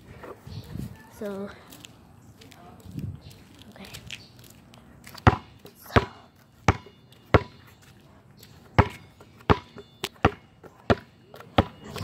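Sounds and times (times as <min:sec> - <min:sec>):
basketball bouncing on pavement: 0:05.1 - 0:07.8, 0:08.4 - 0:12.0.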